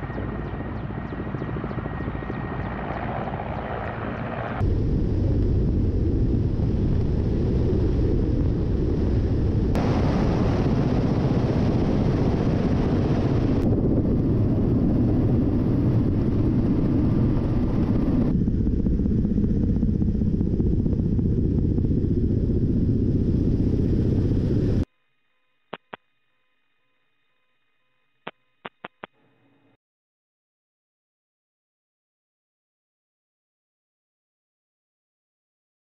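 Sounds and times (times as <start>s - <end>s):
helicopter rotors and engines droning: 0.0s - 24.9s.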